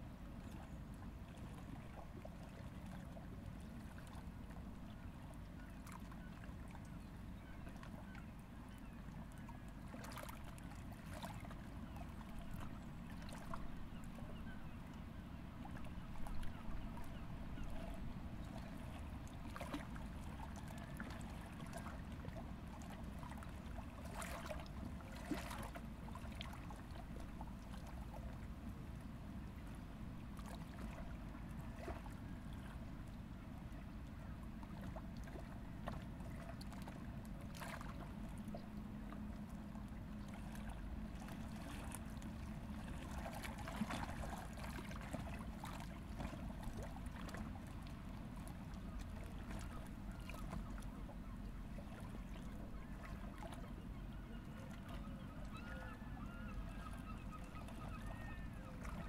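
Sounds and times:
soft water splashes: 0:00.0 - 0:59.0
water lapping and trickling: 0:00.0 - 0:59.0.

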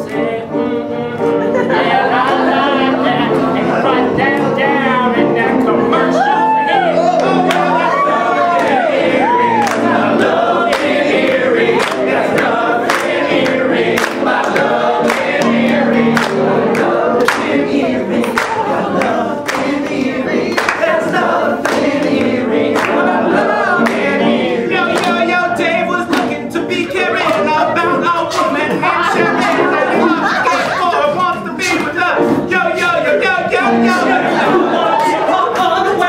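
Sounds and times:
men singing a cappella: 0:00.0 - 0:36.0
steady beat of sharp clicks: 0:09.7 - 0:24.2.

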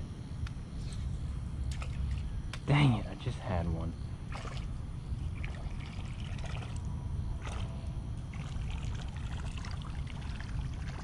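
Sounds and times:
low steady rumble: 0:00.0 - 0:11.0
water trickling from a drain: 0:04.3 - 0:11.0.

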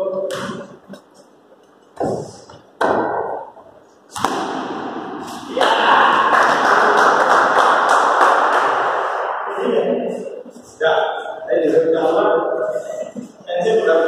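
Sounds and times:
loud rushing noise: 0:04.2 - 0:09.9.

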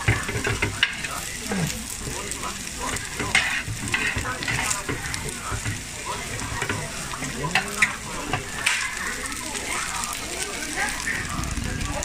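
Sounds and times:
food sizzling on steel tray: 0:00.0 - 0:12.0
spatulas scraping and clinking: 0:02.9 - 0:09.2.

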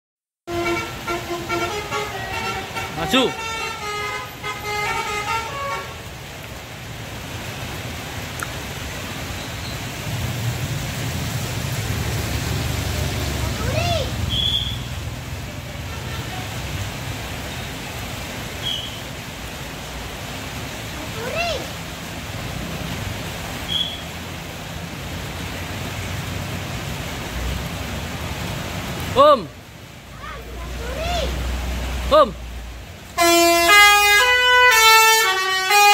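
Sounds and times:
wet-road traffic noise: 0:00.4 - 0:35.9
multi-tone bus horn melody: 0:00.5 - 0:06.2, 0:33.2 - 0:35.9.

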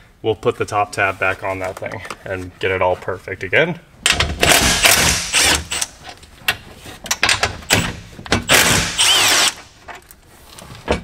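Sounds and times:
cordless power tool spurts: 0:08.5 - 0:09.7.

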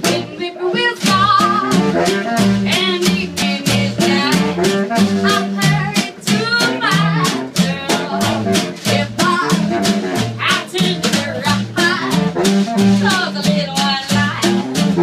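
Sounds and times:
woman singing with vibrato: 0:00.0 - 0:02.0, 0:02.6 - 0:12.3, 0:12.9 - 0:14.6
drum keeping a steady beat: 0:00.0 - 0:15.0
upright bass line: 0:00.0 - 0:15.0.

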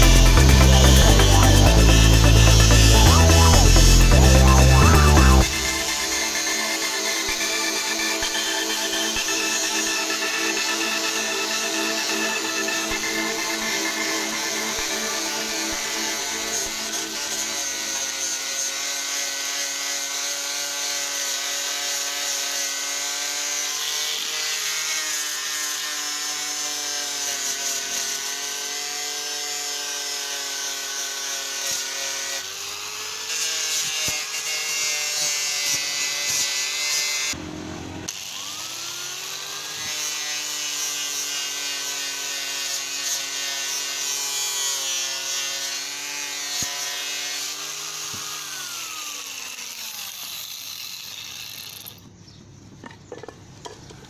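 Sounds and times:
buffing pad rubbing metal: 0:00.0 - 0:17.6
angle grinder motor whine: 0:00.0 - 0:52.1.

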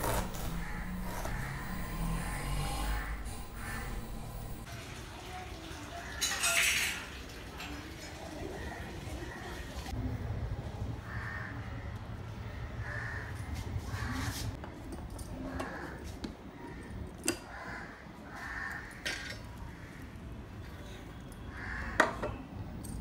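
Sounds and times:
crows cawing: 0:00.0 - 0:04.7, 0:11.0 - 0:11.9, 0:12.8 - 0:14.4, 0:15.5 - 0:16.0, 0:17.5 - 0:20.2, 0:21.5 - 0:22.2.

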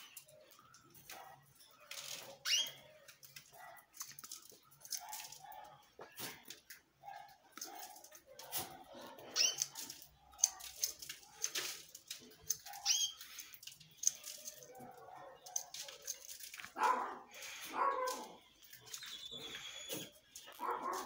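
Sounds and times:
dog barking and yelping: 0:04.9 - 0:06.0, 0:12.6 - 0:13.2, 0:14.6 - 0:18.4, 0:19.2 - 0:21.0.

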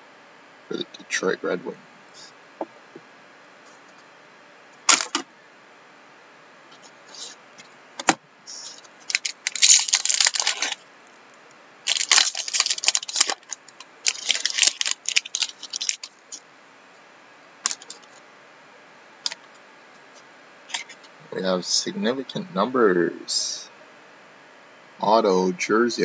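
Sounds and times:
card pack crinkling and tearing: 0:09.0 - 0:10.8, 0:11.8 - 0:16.4, 0:17.7 - 0:18.1.

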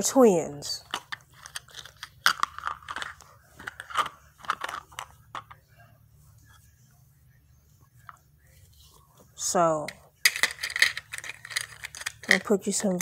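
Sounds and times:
plastic toy dishes clattering: 0:00.8 - 0:05.6, 0:09.9 - 0:13.0.

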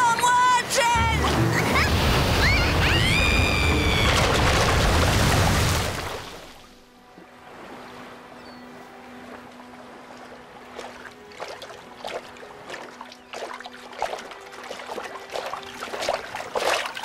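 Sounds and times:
water splashing from swimming strokes: 0:01.1 - 0:06.8, 0:10.1 - 0:17.0.

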